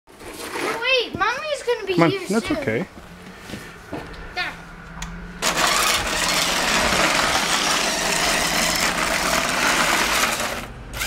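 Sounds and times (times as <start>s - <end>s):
toy car electric motor whirring: 5.4s - 11.0s.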